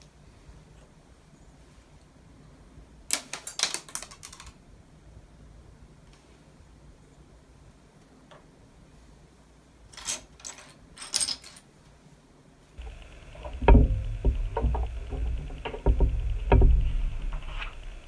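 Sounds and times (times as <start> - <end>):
plastic bricks clicking: 3.1 - 4.6.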